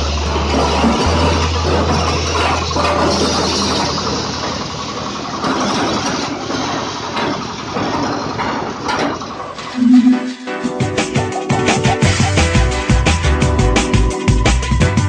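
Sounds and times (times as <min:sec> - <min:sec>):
small diesel engine running: 0:00.0 - 0:09.8.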